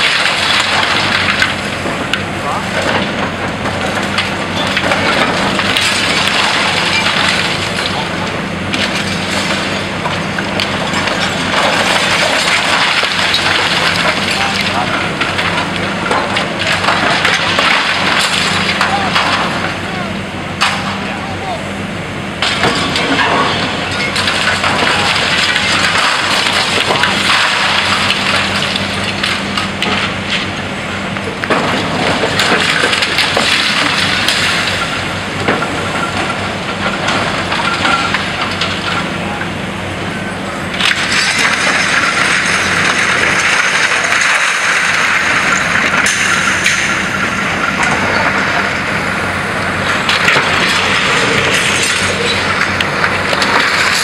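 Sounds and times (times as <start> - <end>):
excavator engine humming: 0.0 - 54.0
concrete and glass breaking: 22.4 - 29.4, 40.8 - 47.1, 49.8 - 52.7.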